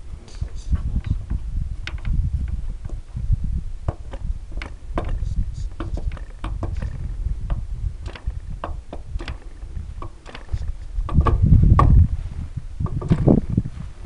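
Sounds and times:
wind buffeting microphone: 0:00.0 - 0:14.0
small clicks and knocks: 0:01.0 - 0:03.0, 0:03.9 - 0:12.0, 0:12.8 - 0:13.4.

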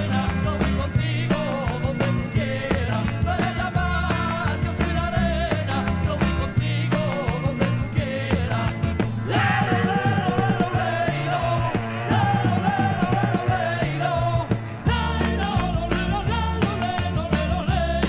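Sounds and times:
pop-rock song with singing: 0:00.0 - 0:18.0.

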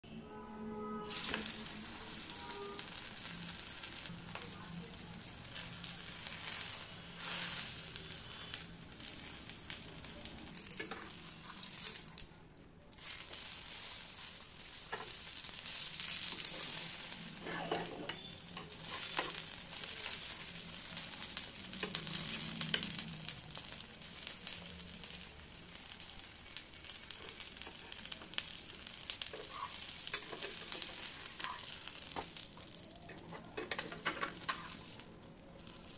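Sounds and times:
spatula scraping pan: 0:01.0 - 0:03.0, 0:13.0 - 0:23.1, 0:29.2 - 0:32.4, 0:33.1 - 0:35.0
oil sizzling and crackling: 0:01.0 - 0:35.9.

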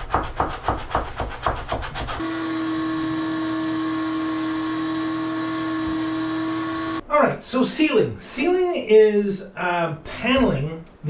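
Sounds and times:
hand sanding wood: 0:00.0 - 0:02.3.

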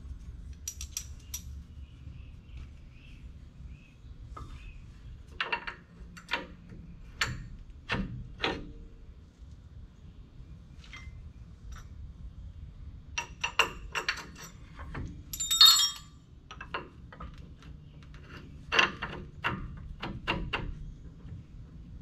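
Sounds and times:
metal brake parts clicking: 0:00.5 - 0:01.5
bright metallic jangle: 0:15.3 - 0:16.2.

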